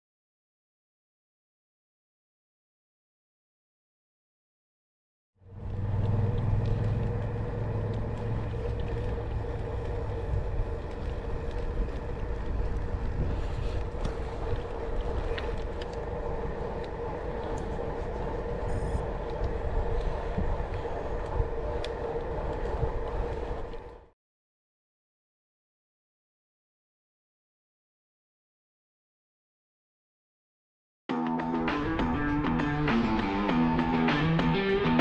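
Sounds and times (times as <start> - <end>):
low rumble: 5.4 - 24.1
bike tyres on gravel: 5.5 - 24.1
faint clicks: 5.6 - 24.0
steady hum: 5.6 - 24.0
wind noise on microphone: 5.6 - 24.1.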